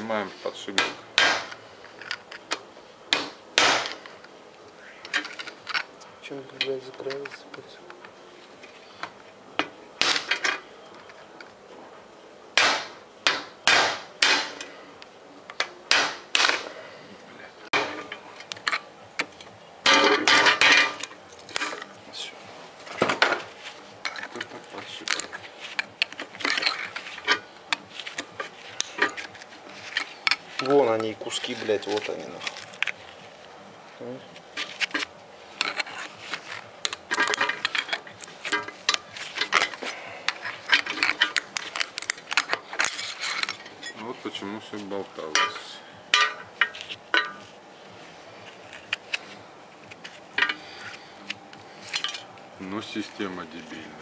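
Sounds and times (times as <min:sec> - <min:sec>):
screwdriver scraping and clinking metal: 0:24.0 - 0:33.2, 0:34.6 - 0:44.0, 0:45.2 - 0:47.5, 0:48.4 - 0:52.4.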